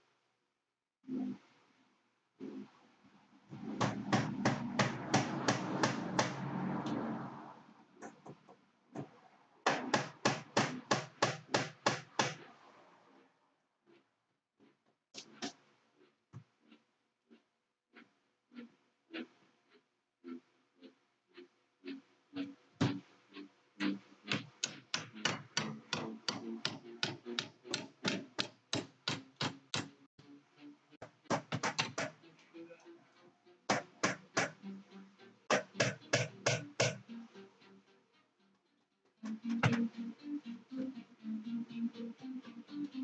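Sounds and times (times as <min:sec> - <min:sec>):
sharp hammer taps: 0:03.8 - 0:06.4
hammer tapping with ring: 0:35.5 - 0:37.1.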